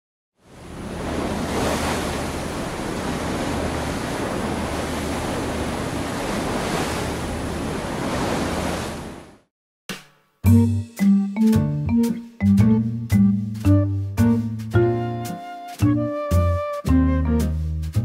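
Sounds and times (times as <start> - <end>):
sea waves: 0.4 - 9.5
wind: 0.4 - 9.5
music with struck notes: 9.9 - 18.0.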